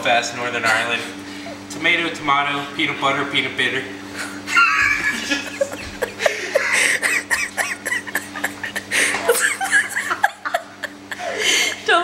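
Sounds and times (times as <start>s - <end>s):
people laughing: 4.2s - 12.0s.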